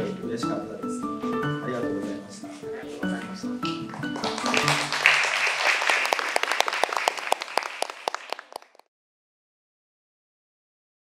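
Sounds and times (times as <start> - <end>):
crowd cheering and clapping: 4.0 - 8.9.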